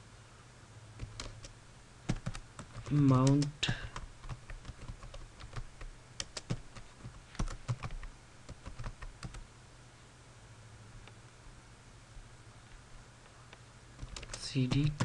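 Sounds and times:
typing on computer keyboard: 1.0s - 1.5s, 2.1s - 9.4s, 14.0s - 15.0s.

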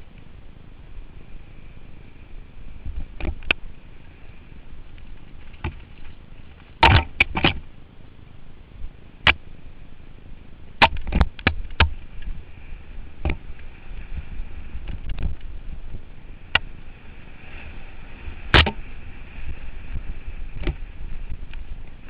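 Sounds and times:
mountain bike riding noise: 0.0s - 22.0s
bike knocks and rattles: 6.8s - 7.6s.

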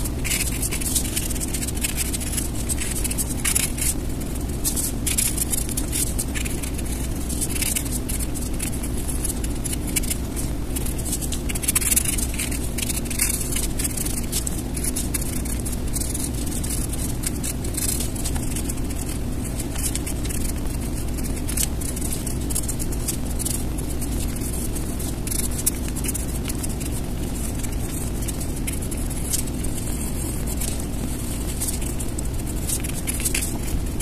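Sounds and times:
low background hum: 0.0s - 34.0s
pencil scratching on paper: 0.0s - 34.0s.

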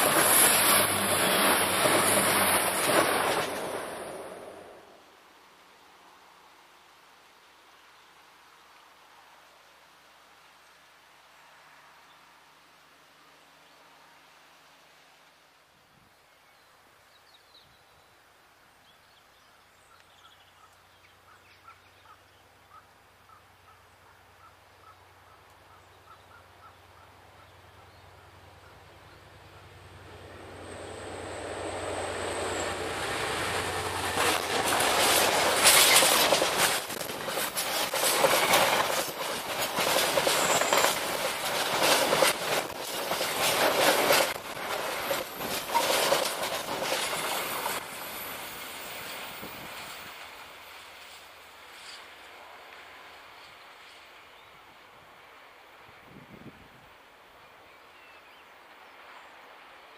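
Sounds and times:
wagons clattering over rail joints: 0.0s - 4.6s, 32.3s - 50.4s
diesel locomotive engine drone: 0.0s - 5.0s, 25.2s - 55.9s
high ringing from rails: 30.2s - 49.2s.

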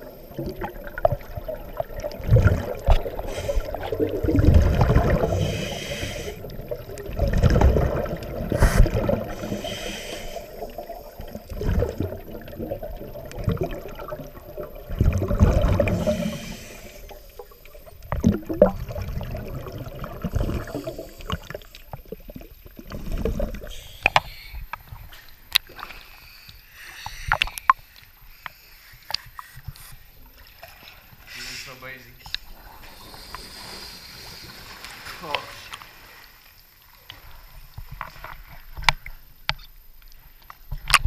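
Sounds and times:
regulator exhaust bubbles gurgling: 0.0s - 5.8s, 10.5s - 23.7s
faint hissing: 0.0s - 7.1s, 7.9s - 38.0s.

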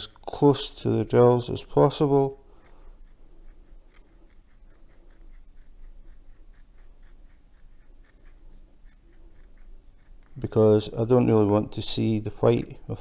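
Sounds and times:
scissors snipping: 2.6s - 10.5s.

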